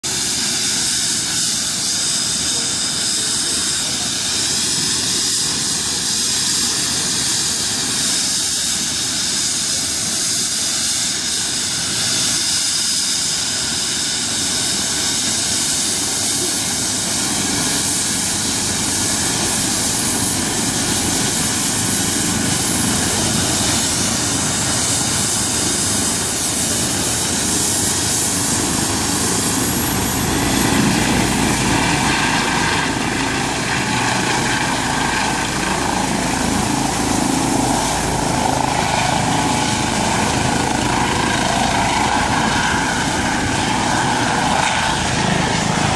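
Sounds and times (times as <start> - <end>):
turbine whine: 0.0 - 45.9
helicopter rotor blades thrumming: 0.1 - 45.9.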